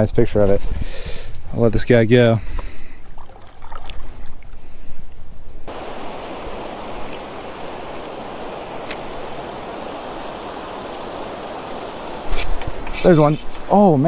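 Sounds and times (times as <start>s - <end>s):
river rushing over rapids: 5.7s - 14.0s.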